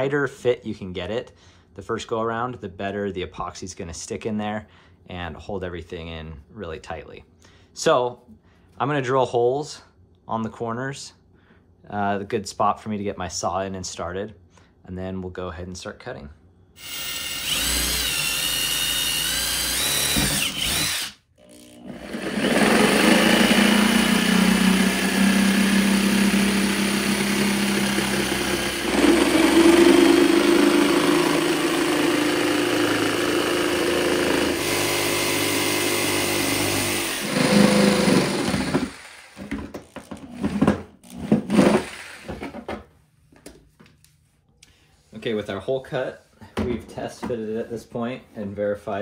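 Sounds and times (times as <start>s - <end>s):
drill boring plastic: 16.8s - 42.5s
jigsaw cutting plastic: 16.8s - 42.5s.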